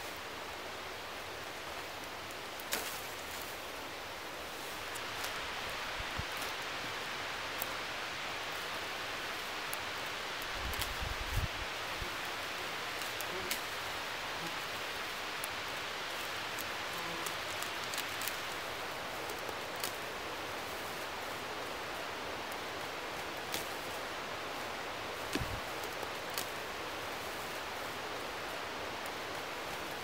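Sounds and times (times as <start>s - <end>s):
soft rustling of shrubs: 0.0s - 30.0s
steady hiss: 0.0s - 30.0s
twigs snapping: 2.6s - 3.7s, 9.6s - 11.5s, 15.4s - 18.6s, 23.4s - 24.0s, 25.2s - 26.6s.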